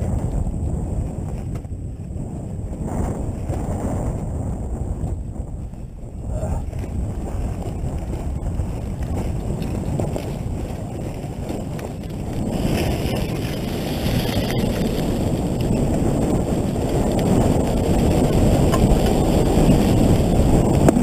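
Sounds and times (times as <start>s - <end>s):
dirt bike engine running: 0.0s - 21.0s
wind rumble on microphone: 0.0s - 21.0s.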